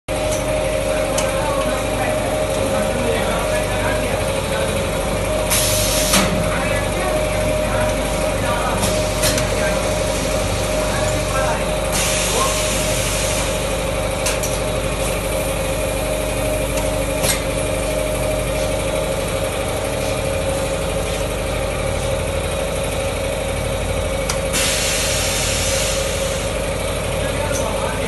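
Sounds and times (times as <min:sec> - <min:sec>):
machine drone with whine: 0:00.1 - 0:28.0
hiss: 0:05.5 - 0:06.3, 0:11.9 - 0:13.7, 0:24.5 - 0:26.5.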